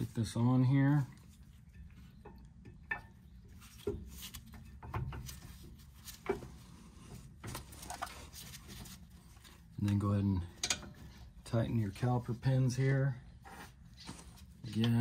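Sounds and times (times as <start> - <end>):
light metallic clicks and knocks: 10.6 - 11.1.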